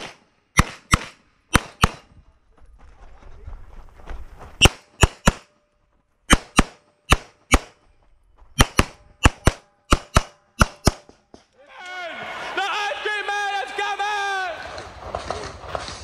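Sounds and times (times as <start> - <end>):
pistol shots: 0.0 - 2.1, 4.6 - 5.5, 6.3 - 7.8, 8.6 - 11.2.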